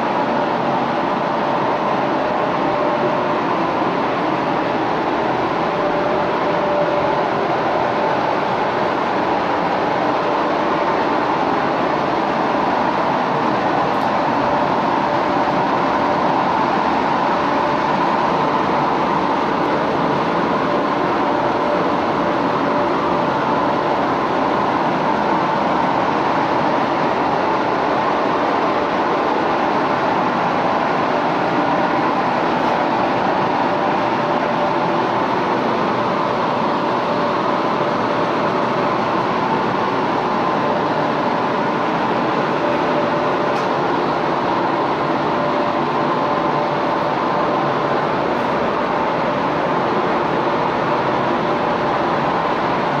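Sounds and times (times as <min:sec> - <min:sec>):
ventilation air rushing: 0:00.0 - 0:53.0.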